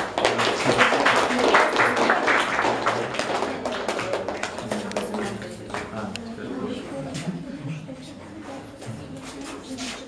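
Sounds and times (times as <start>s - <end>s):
crowd clapping: 0.0s - 6.2s.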